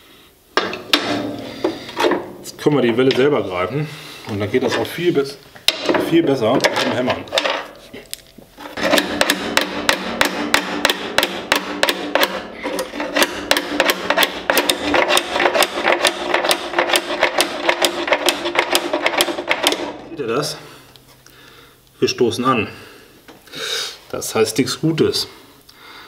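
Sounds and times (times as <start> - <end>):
hammer striking metal pliers: 8.8 - 19.9.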